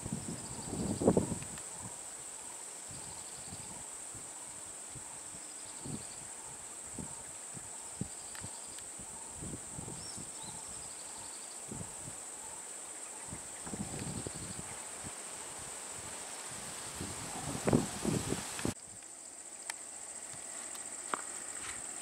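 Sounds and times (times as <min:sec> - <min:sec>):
high-pitched insect drone: 0:00.0 - 0:22.0
faint bird chirps: 0:00.3 - 0:14.9.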